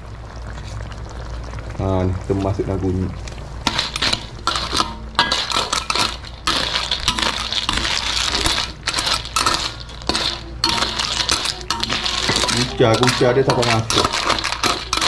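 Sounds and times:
snail shells clinking on spoon: 3.7s - 15.0s.

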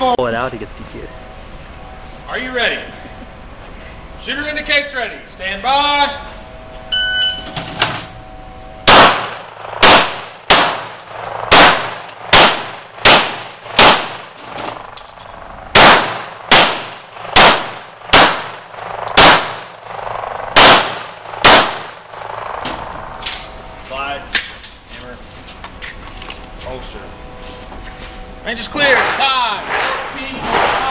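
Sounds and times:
shot timer beep: 6.9s - 7.5s
pistol shots echoing indoors: 8.8s - 14.2s, 15.7s - 23.1s.

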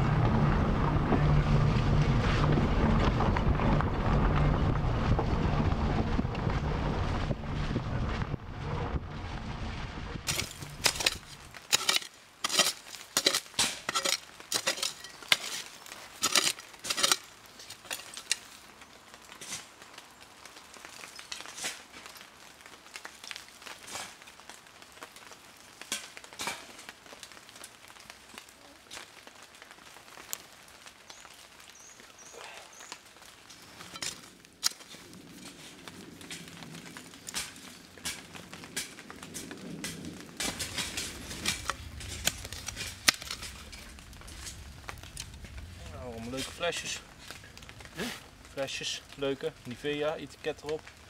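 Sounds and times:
wind rumbling on microphone: 0.0s - 11.7s, 34.8s - 48.6s
shovel scraping soil: 10.3s - 18.6s, 19.4s - 19.7s, 21.4s - 21.9s, 23.8s - 24.2s, 37.2s - 44.6s
objects clinking in dirt: 10.3s - 19.7s, 33.4s - 48.3s.

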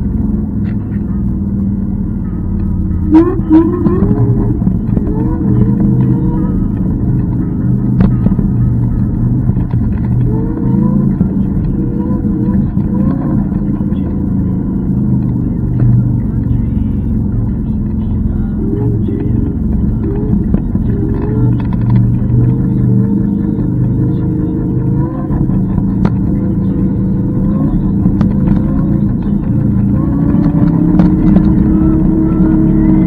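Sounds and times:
wind and road noise rumble: 0.0s - 33.0s
faint wavering tones: 1.1s - 33.0s.

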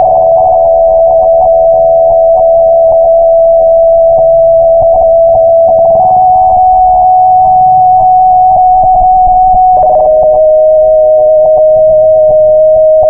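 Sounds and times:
held synth tone: 0.0s - 13.0s.

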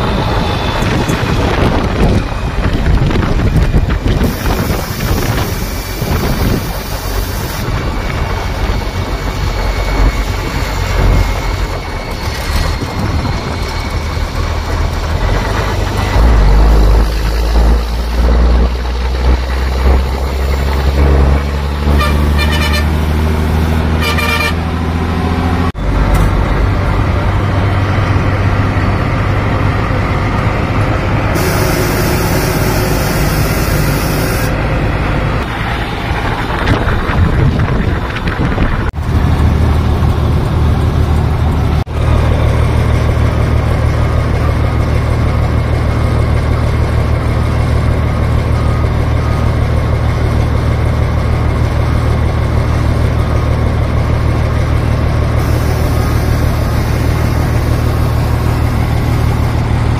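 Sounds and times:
truck diesel engine running: 0.0s - 59.9s
truck horn toots: 20.3s - 25.0s, 31.3s - 34.7s, 55.4s - 59.6s.

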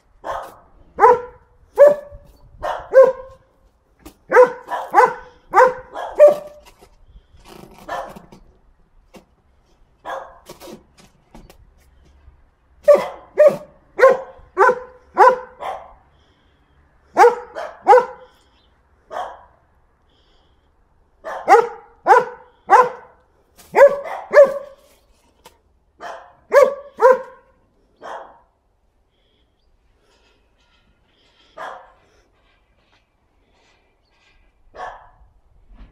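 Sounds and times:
dog barking: 0.2s - 3.4s, 4.3s - 6.6s, 7.9s - 8.2s, 10.0s - 10.4s, 12.8s - 16.0s, 17.1s - 18.4s, 19.1s - 19.6s, 21.2s - 24.9s, 26.0s - 28.5s, 31.6s - 32.0s, 34.7s - 35.2s.

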